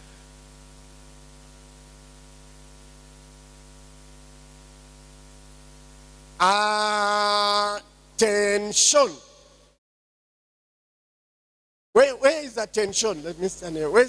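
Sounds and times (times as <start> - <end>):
electrical mains hum: 0.0 - 9.6
man calling over loudspeakers: 6.4 - 9.7, 12.0 - 14.0.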